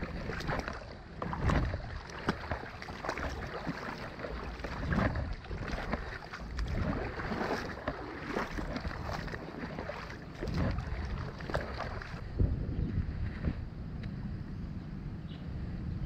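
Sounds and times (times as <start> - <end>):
small splashes and clicks: 0.0 - 12.2
creek water splashing and flowing: 0.0 - 12.5
wind buffeting microphone: 0.0 - 16.0.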